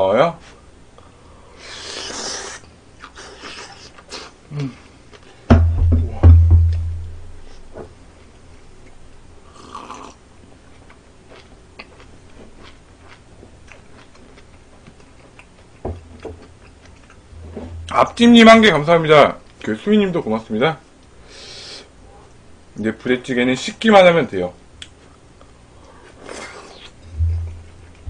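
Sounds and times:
low thuds: 5.5 - 7.9, 17.3 - 18.8, 27.1 - 28.0
chewing clicks and smacks: 10.8 - 17.2.

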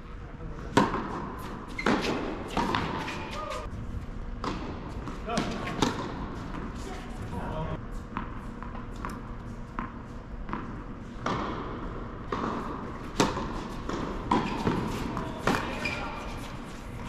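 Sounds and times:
tennis ball bouncing on hard court: 0.8 - 3.2, 4.4 - 6.7, 8.1 - 16.0
racket striking tennis ball: 0.8 - 3.4, 4.4 - 6.7, 10.5 - 15.9.

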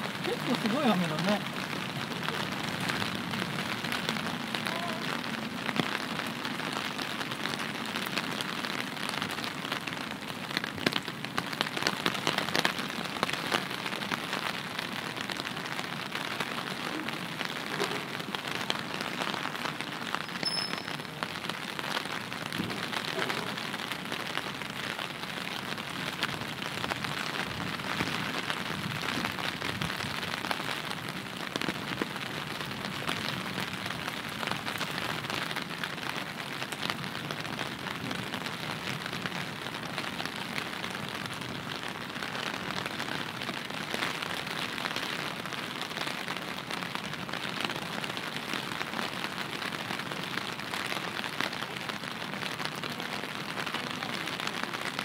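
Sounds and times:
steady rain falling: 0.0 - 55.0
brief high tone: 20.2 - 21.1.

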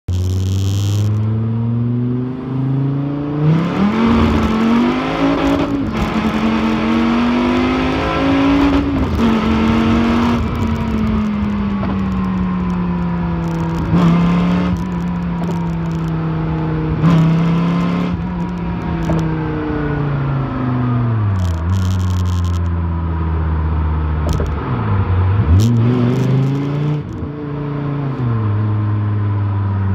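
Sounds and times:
exhaust cracks: 0.1 - 1.3, 8.6 - 19.4, 21.2 - 22.8, 24.2 - 24.7
car engine accelerating: 0.1 - 29.9.

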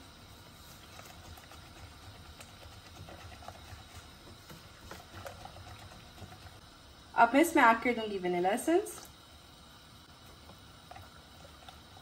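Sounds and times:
whisk stirring liquid in glass bowl: 0.7 - 6.6.

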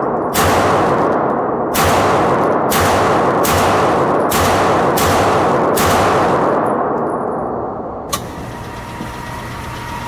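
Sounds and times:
pistol shots echoing indoors: 0.0 - 8.1
motorized target carrier humming: 8.1 - 10.0.

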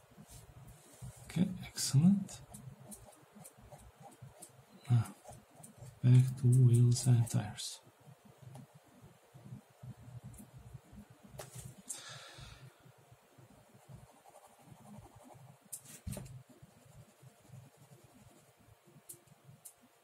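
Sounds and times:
pen scratching on paper: 13.6 - 18.5.

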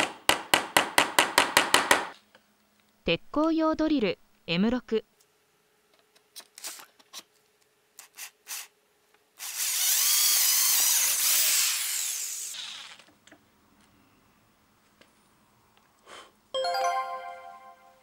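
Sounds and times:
power drill boring through wood: 9.4 - 13.0.

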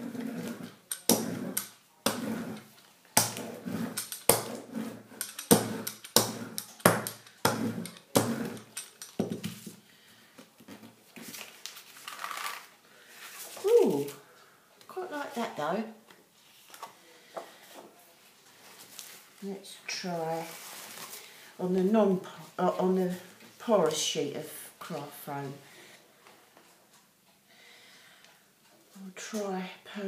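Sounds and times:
rubber roller rolling over paper: 0.0 - 8.8.

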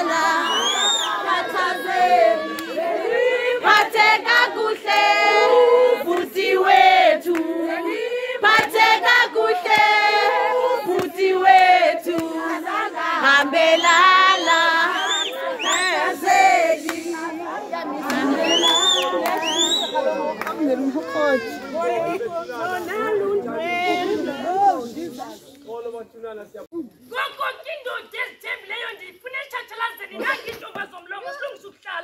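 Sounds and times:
women singing in chorus: 0.0 - 20.1.

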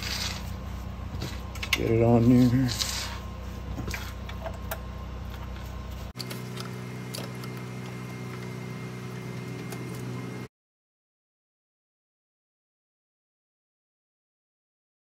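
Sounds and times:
low mechanical hum: 0.0 - 10.5.

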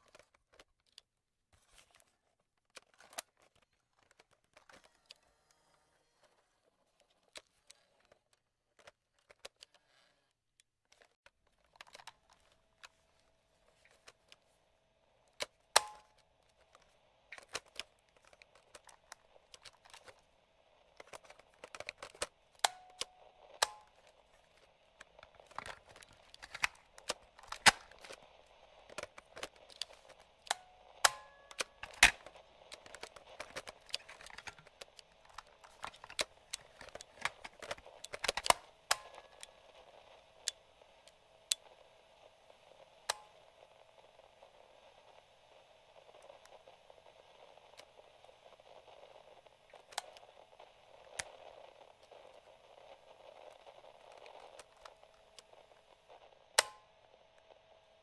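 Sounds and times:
faint hum with hiss: 11.4 - 58.0
radio switches and levers clicking: 15.4 - 16.8, 20.9 - 41.7.

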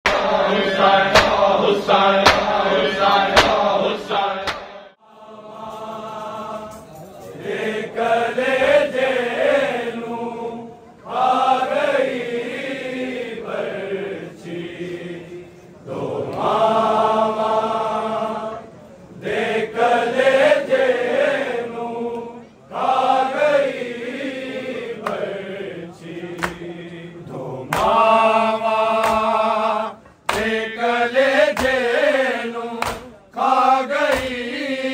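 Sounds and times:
sharp beats: 0.1 - 4.9
men chanting a lament: 0.1 - 34.9.

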